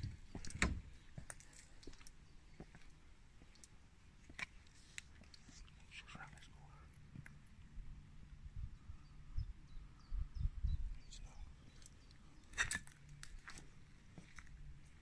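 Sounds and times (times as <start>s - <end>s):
faint irregular clicks: 0.3s - 7.8s.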